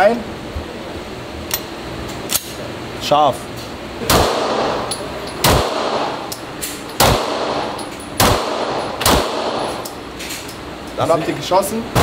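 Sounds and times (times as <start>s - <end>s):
pistol shots echoing indoors: 4.1s - 6.3s, 6.9s - 9.9s.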